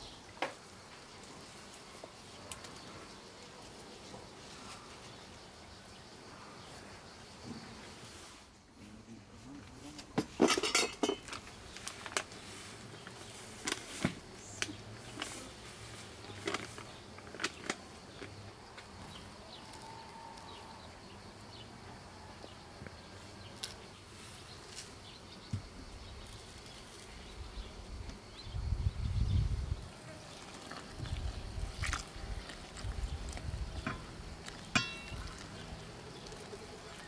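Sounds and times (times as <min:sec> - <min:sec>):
faint insect buzz: 0:17.9 - 0:37.0.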